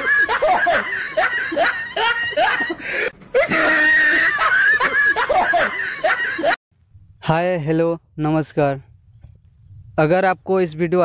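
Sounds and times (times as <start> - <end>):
loud laughing: 0.0 - 6.6.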